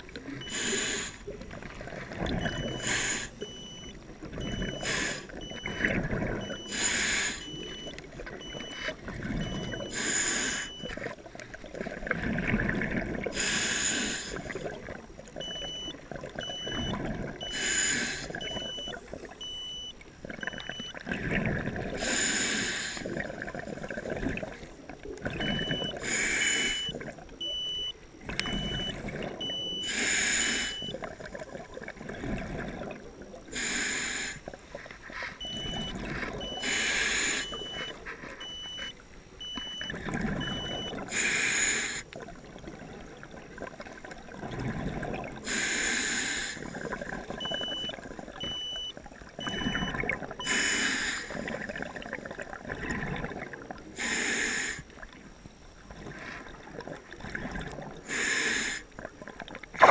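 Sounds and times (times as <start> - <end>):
bubbling exhaled air: 0.0 - 19.4, 20.2 - 27.2, 28.2 - 39.0, 39.7 - 48.4, 49.3 - 55.1, 55.8 - 59.9
regulator hissing inhale: 0.5 - 1.2, 6.7 - 7.5, 9.9 - 10.7, 13.4 - 14.5, 17.5 - 18.3, 22.0 - 23.1, 26.0 - 26.8, 29.8 - 30.8, 33.5 - 34.4, 36.6 - 37.8, 41.1 - 42.1, 45.4 - 46.7, 50.5 - 51.5, 54.0 - 54.9, 58.1 - 58.9
high electronic beep: 2.4 - 9.9, 15.4 - 17.8, 18.4 - 20.9, 25.4 - 26.0, 28.5 - 31.0, 35.4 - 40.9, 47.4 - 50.6.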